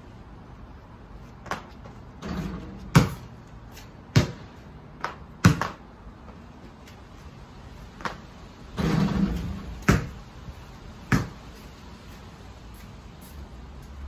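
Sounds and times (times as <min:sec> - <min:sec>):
basketball bouncing on paving: 0:01.4 - 0:06.4, 0:08.8 - 0:10.3, 0:11.0 - 0:11.6.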